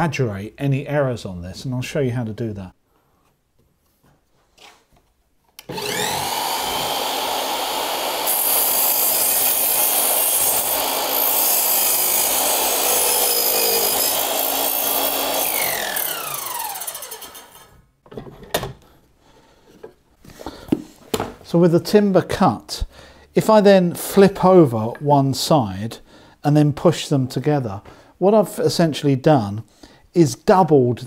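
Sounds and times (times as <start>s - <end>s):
mitre saw motor: 5.7s - 17.7s
saw blade cutting timber: 5.7s - 17.7s.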